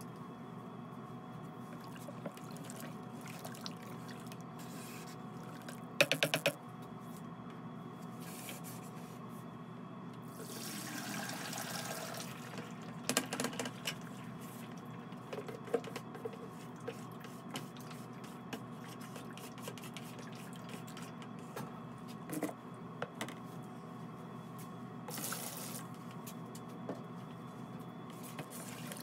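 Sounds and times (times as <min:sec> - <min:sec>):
steady background hum: 0:00.0 - 0:29.0
liquid pouring into a sieve: 0:10.4 - 0:12.6.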